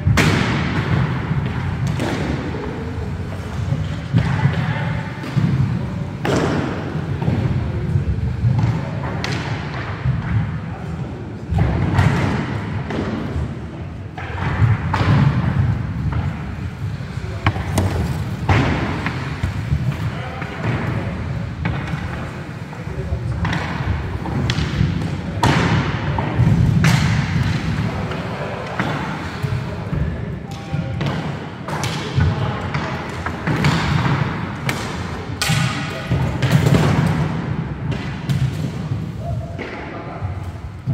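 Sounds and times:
inline skate wheels rumbling: 0.0s - 11.0s, 14.3s - 25.5s
hockey sticks and ball knocking: 0.0s - 40.0s.

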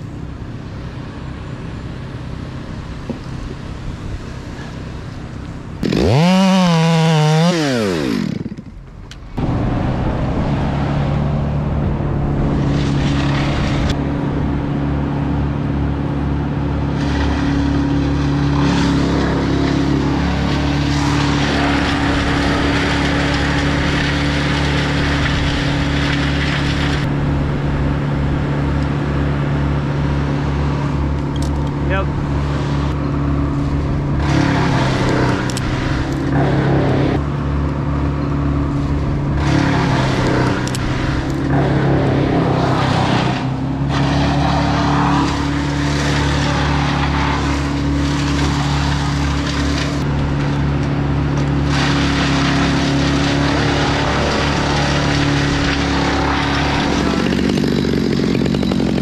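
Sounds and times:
chipper grinding branches: 0.0s - 59.0s
wood chipper engine running: 0.0s - 59.0s
chainsaw revving: 5.8s - 8.8s, 16.8s - 27.1s, 34.0s - 37.3s, 38.7s - 59.0s.

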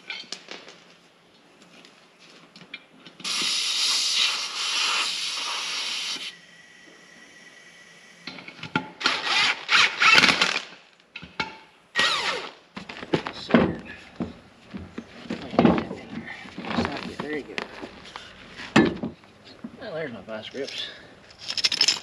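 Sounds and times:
air hose hissing: 3.2s - 8.5s.

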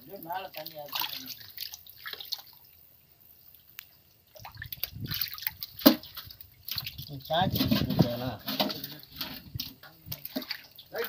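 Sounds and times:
hands splashing in shallow water: 0.5s - 2.6s, 4.4s - 11.0s.

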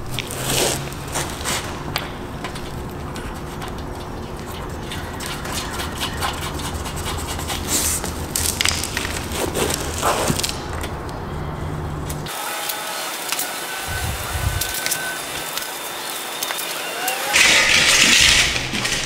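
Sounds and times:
plastic strip rubbing and scraping: 0.0s - 11.0s
steady low hum: 0.0s - 12.3s, 13.8s - 16.5s.

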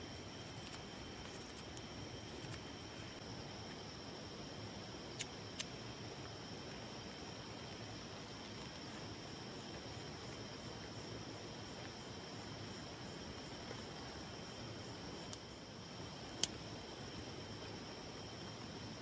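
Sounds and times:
night insects chirring: 0.0s - 19.0s.

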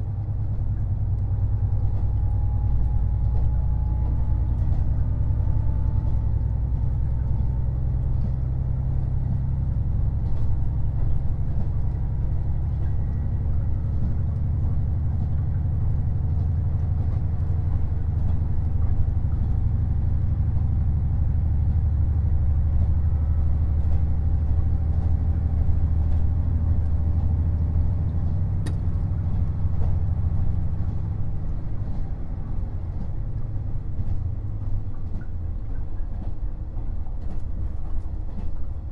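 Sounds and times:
diesel railcar engine rumble: 0.0s - 38.9s
wheels clicking over rail joints: 9.7s - 38.9s.

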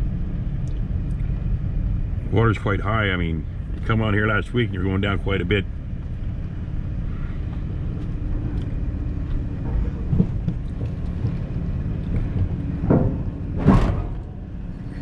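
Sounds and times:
van rumbling: 0.0s - 15.0s
van thump over ramp: 9.6s - 14.7s.

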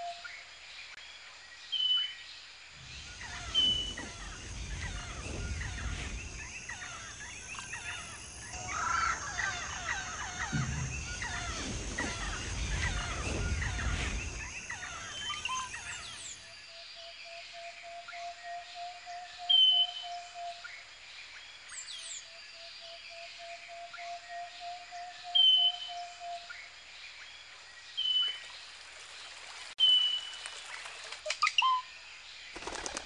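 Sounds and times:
low rumble: 2.8s - 16.4s
many birds chirping and squawking: 2.8s - 16.4s.

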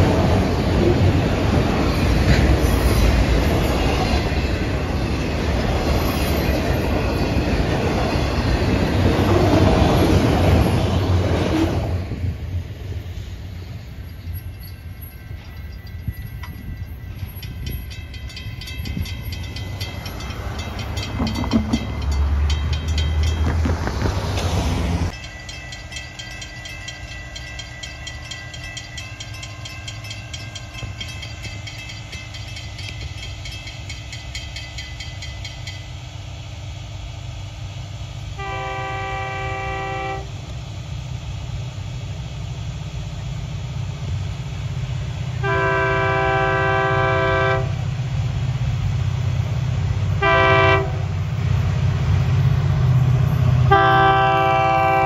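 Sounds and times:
crossing bell ringing: 13.7s - 23.7s, 25.1s - 36.0s
train horn blasts: 38.4s - 40.4s, 45.4s - 47.8s, 50.2s - 51.1s, 53.6s - 55.0s.

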